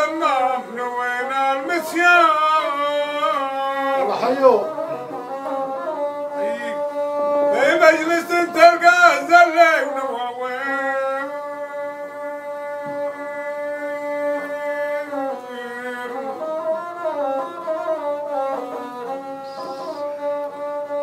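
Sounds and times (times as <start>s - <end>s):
man singing: 0.0s - 5.4s, 6.3s - 11.9s, 13.2s - 16.9s
bowed fiddle slow melody: 0.0s - 21.0s.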